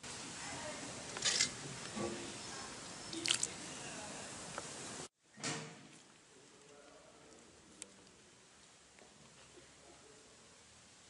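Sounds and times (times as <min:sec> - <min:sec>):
steady hiss: 0:00.0 - 0:05.1
wet squelching of food: 0:03.1 - 0:03.6.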